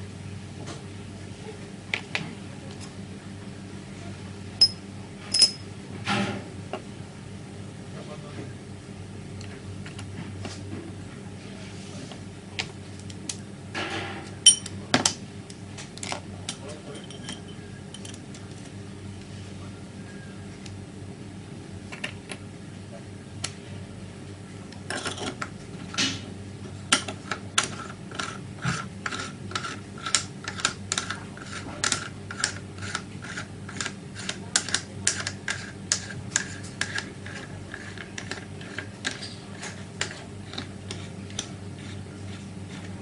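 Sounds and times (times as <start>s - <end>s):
steady low hum: 0.0s - 43.0s.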